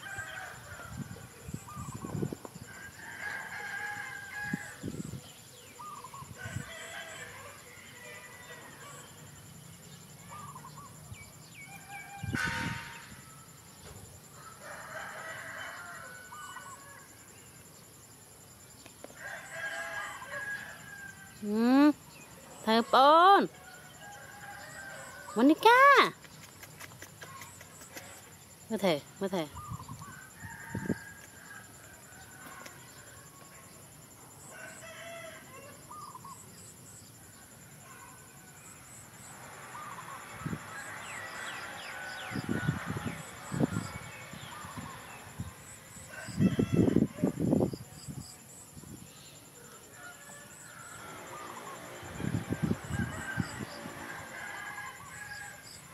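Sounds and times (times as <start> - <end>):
rooster crowing: 2.6 - 5.0, 6.2 - 9.1, 11.7 - 13.6, 14.3 - 17.1, 19.2 - 21.6, 23.5 - 25.7, 30.0 - 33.5, 34.4 - 36.2, 39.6 - 47.4, 49.8 - 55.9
bird chirps: 8.5 - 14.0.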